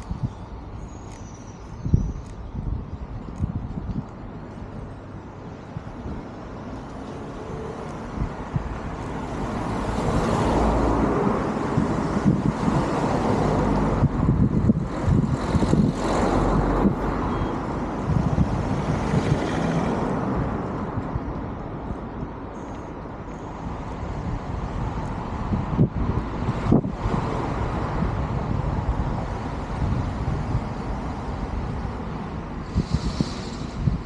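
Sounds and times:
car passing: 7.2s - 21.0s.

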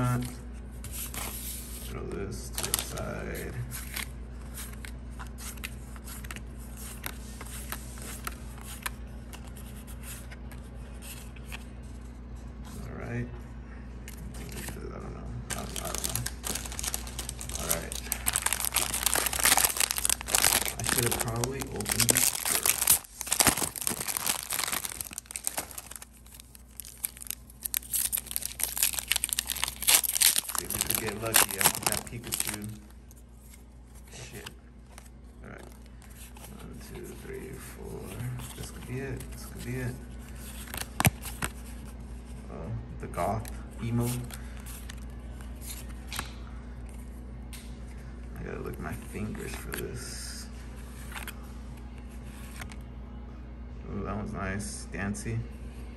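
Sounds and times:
steady low hum: 0.0s - 55.9s
foil wrapper crinkling: 15.5s - 32.9s.

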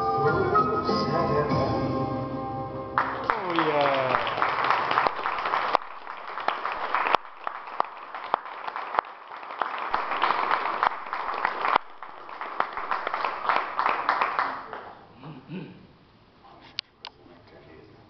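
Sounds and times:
audience applauding: 3.0s - 15.1s.

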